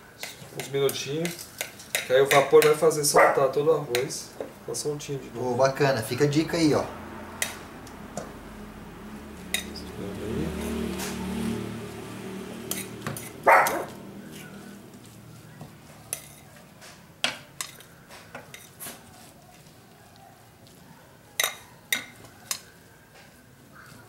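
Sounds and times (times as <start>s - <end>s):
metal spoon scraping in a pan: 0.1s - 2.8s, 12.6s - 13.4s, 16.0s - 16.7s, 17.4s - 19.0s, 21.4s - 22.8s.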